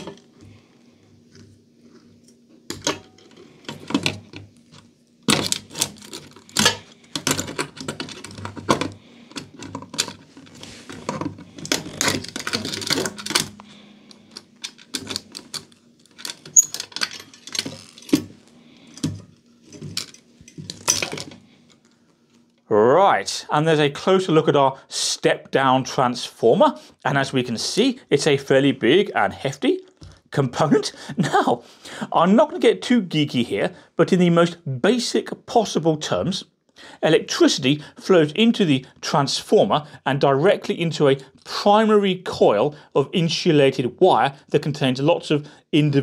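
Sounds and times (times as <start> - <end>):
metallic clicks and scrapes: 2.7 - 21.8.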